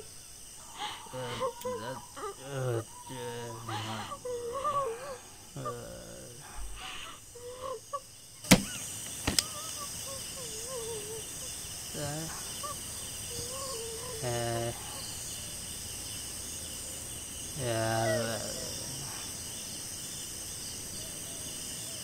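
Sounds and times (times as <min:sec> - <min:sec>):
wavering calls: 0:00.0 - 0:19.8
crickets chirping: 0:00.0 - 0:22.0
sharp clicks: 0:08.5 - 0:09.8.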